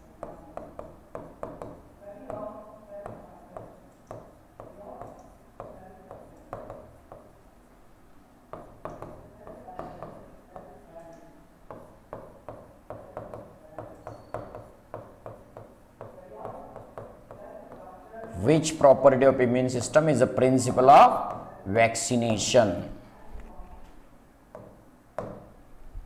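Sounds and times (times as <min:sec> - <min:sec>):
pen tapping on glass: 0:00.2 - 0:07.4, 0:08.5 - 0:10.7, 0:11.7 - 0:17.8, 0:24.5 - 0:25.5.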